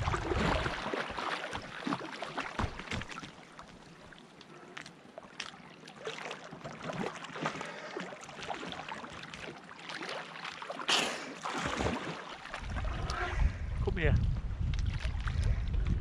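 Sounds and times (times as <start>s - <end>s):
water sloshing and splashing: 0.0s - 16.0s.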